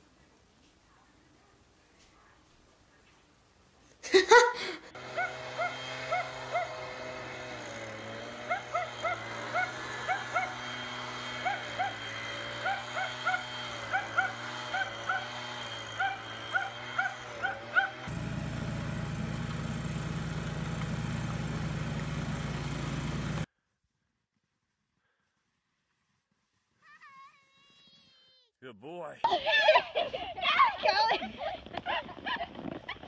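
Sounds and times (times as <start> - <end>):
snowblower engine running: 4.9 - 23.5
small dog yapping: 5.1 - 6.8, 8.4 - 10.7, 11.4 - 15.4, 16.0 - 18.1.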